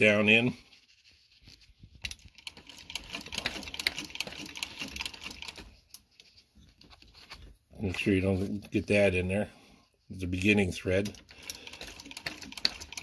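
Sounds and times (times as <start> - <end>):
sewing machine clicking: 2.0 - 5.8, 11.0 - 13.0.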